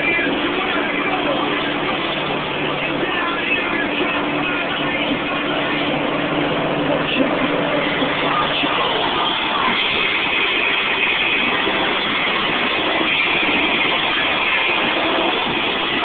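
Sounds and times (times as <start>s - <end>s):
car engine while driving: 0.0s - 16.0s
road noise: 0.0s - 16.0s.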